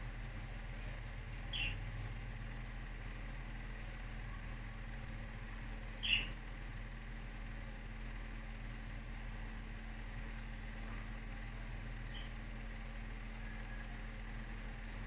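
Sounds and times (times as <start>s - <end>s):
steady low hum: 0.0s - 15.0s
budgerigar chirp: 1.5s - 1.8s, 6.0s - 6.4s.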